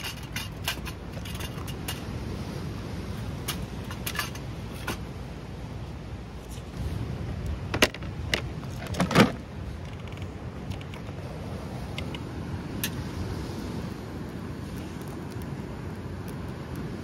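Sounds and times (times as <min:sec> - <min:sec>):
firewood and metal knocks and clinks: 0:00.0 - 0:02.2, 0:03.2 - 0:05.1, 0:07.7 - 0:11.1.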